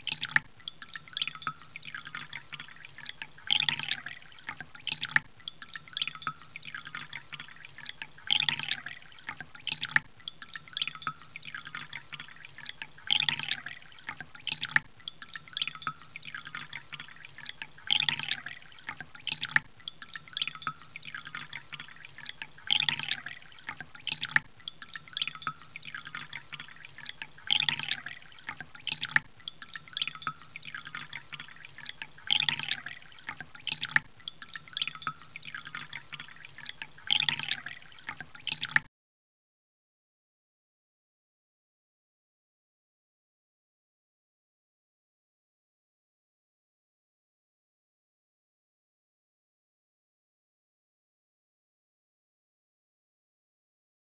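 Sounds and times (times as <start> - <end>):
water poured into a glass: 0.0 - 38.9.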